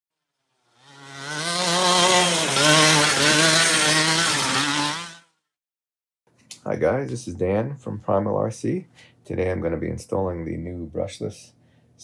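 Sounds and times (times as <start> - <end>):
rc truck motor buzzing: 0.2 - 5.4.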